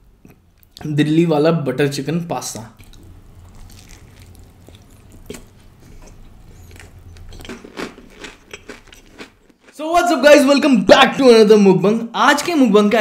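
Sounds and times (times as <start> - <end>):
low steady hum: 0.0 - 13.0
mouth clicks and smacks chewing: 2.8 - 9.8.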